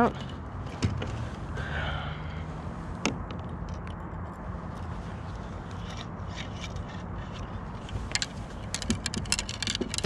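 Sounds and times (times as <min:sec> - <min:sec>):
fishing gear scraping and clicking: 0:03.2 - 0:10.0.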